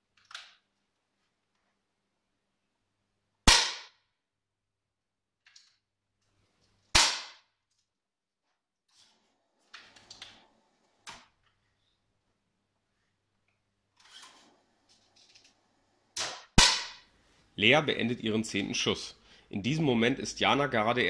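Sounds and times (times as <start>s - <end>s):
air rifle shots: 3.5s - 4.0s, 16.2s - 17.0s.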